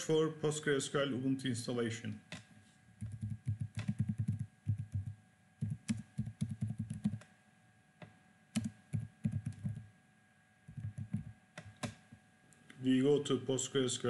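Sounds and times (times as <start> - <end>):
typing on a keyboard: 3.0 - 7.2, 8.6 - 9.8, 10.7 - 12.0.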